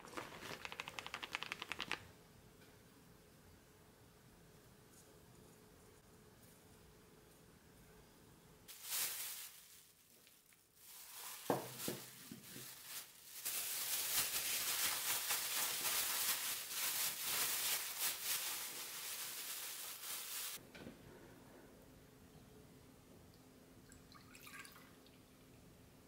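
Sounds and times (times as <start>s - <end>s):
plastic bag rustling: 0.0s - 2.0s, 8.7s - 20.6s.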